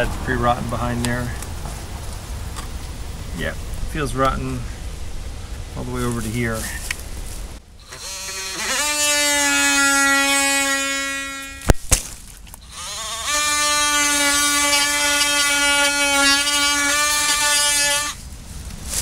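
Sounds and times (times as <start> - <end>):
multitool buzzing cutting wood: 7.8 - 11.7, 12.6 - 18.2.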